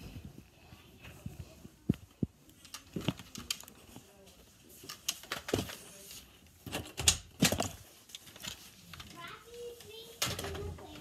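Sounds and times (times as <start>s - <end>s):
clothing rustle: 0.0s - 11.0s
clicks and knocks from handling: 6.6s - 11.0s.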